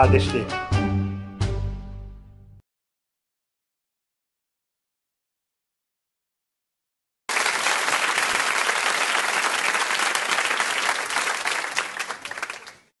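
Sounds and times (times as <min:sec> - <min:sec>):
audience applause: 0:07.3 - 0:13.0.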